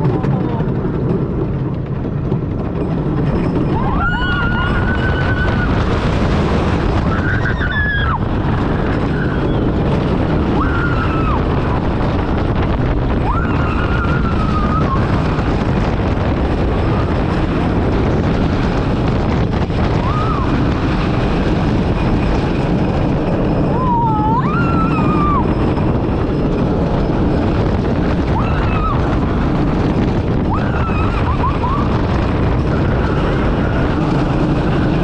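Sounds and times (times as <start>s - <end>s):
train rumbling on wooden track: 0.0s - 35.0s
wind rushing on microphone: 0.0s - 35.0s
riders screaming: 3.7s - 6.0s, 6.8s - 12.2s, 13.2s - 15.7s, 19.8s - 21.1s, 23.5s - 26.0s, 28.0s - 34.5s.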